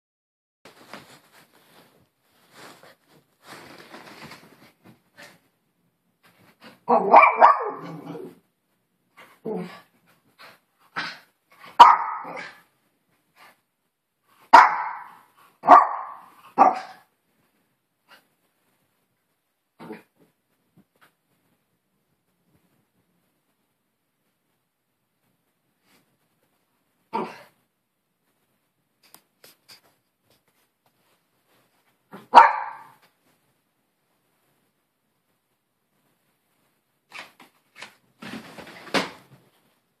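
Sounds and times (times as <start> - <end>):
small dog barking: 6.9 - 8.3, 11.8 - 12.6, 14.5 - 17.1, 32.1 - 33.0.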